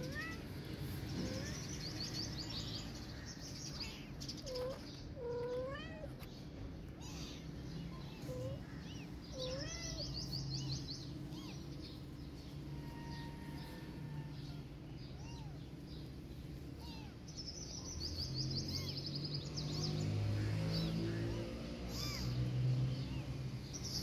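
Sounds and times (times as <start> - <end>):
kitten meowing: 7.0 - 10.2, 11.2 - 11.7, 12.7 - 15.6, 16.8 - 17.2, 21.9 - 22.4.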